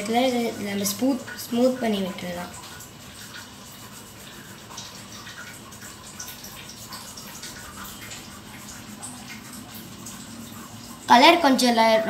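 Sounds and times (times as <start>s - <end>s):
paper rubbing on drawing sheet: 3.0s - 5.2s.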